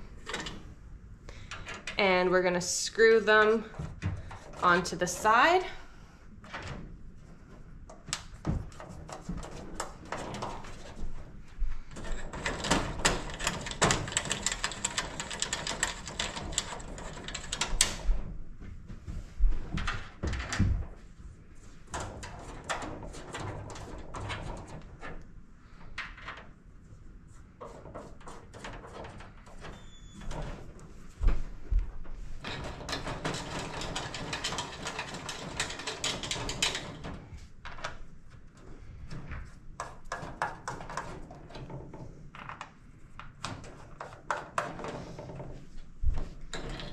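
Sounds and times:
dog crate panels rattling: 0:32.4 - 0:37.3.

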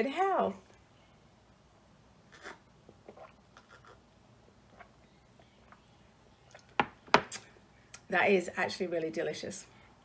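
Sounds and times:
person drinking and swallowing: 0:02.3 - 0:04.0, 0:04.6 - 0:05.1.

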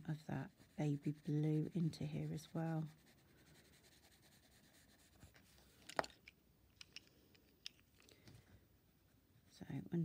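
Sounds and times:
pencil scratching on paper: 0:00.0 - 0:05.6.

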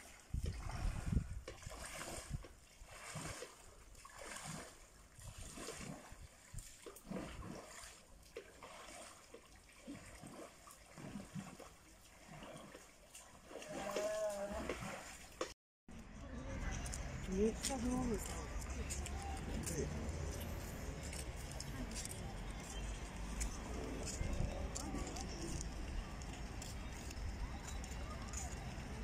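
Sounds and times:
loud splash: 0:00.0 - 0:15.4
pool water splashing and lapping: 0:00.0 - 0:29.0.

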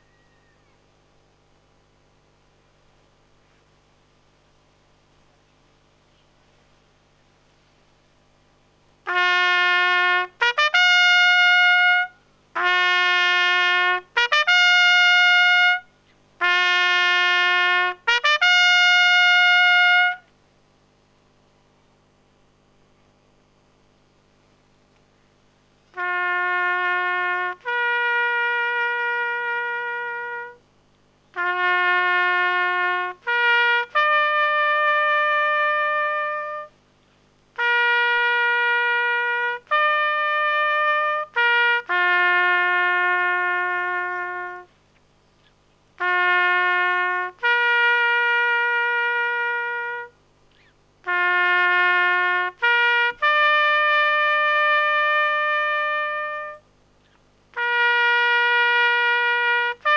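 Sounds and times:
solo trumpet playing long notes: 0:09.0 - 0:20.3, 0:25.9 - 0:30.7, 0:31.3 - 0:36.8, 0:37.5 - 0:44.8, 0:46.0 - 0:56.7, 0:57.5 - 0:59.9.

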